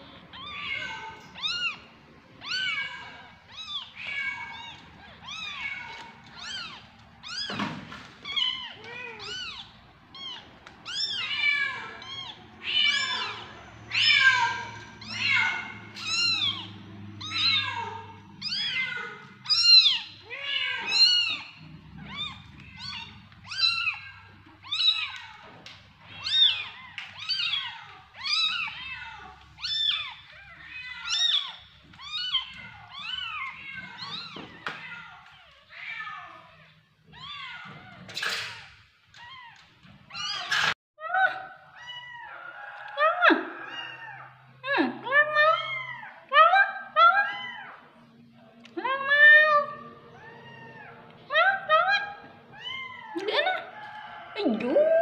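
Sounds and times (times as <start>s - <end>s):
kittens mewing: 0.0s - 40.8s, 49.6s - 54.7s.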